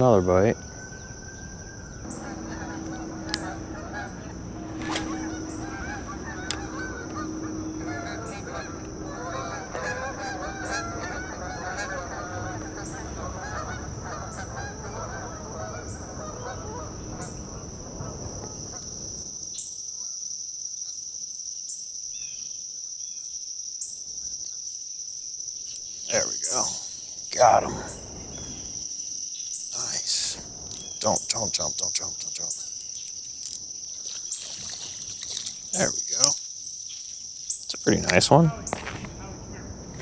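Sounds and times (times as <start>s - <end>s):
geese honking: 0.6s - 19.2s
high-pitched insect buzz: 0.6s - 23.2s, 24.3s - 40.0s.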